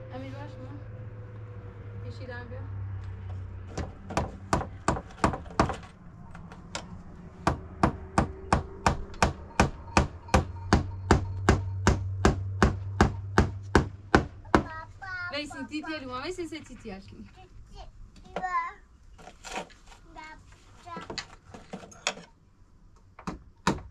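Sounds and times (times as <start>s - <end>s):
hammer driving nails into wood: 3.7s - 5.9s, 23.2s - 23.9s.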